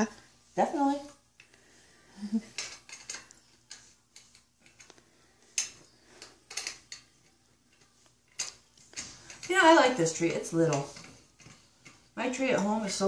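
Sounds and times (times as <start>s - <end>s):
plastic parts clicking: 5.6s - 7.1s.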